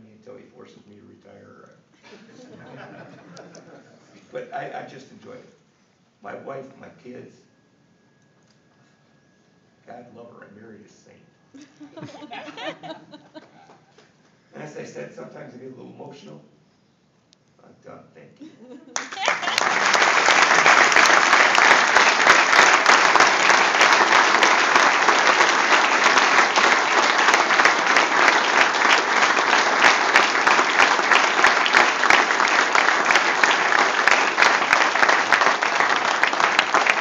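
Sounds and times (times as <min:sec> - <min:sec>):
large audience applauding: 0:19.0 - 0:37.0.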